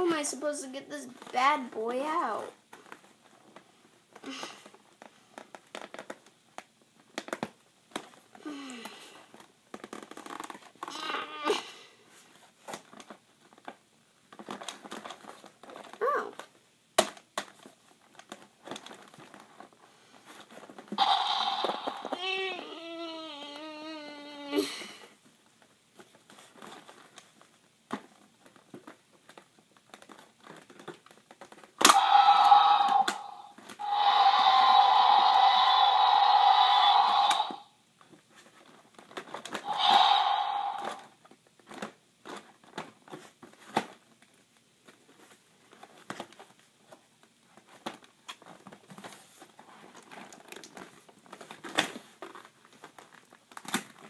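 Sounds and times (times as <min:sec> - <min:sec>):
plastic packaging rustling: 0:12.2 - 0:16.6, 0:17.2 - 0:22.2, 0:25.2 - 0:31.8, 0:38.0 - 0:39.7, 0:40.7 - 0:54.0
loud electronic toy sound: 0:21.0 - 0:22.8, 0:31.8 - 0:37.7, 0:39.6 - 0:41.1.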